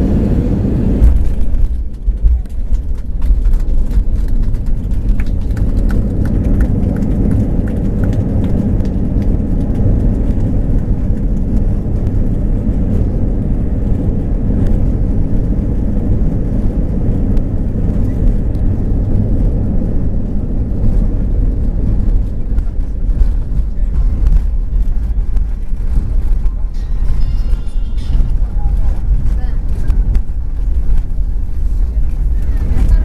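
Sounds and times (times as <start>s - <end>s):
airliner cabin rumble: 0.0s - 33.0s.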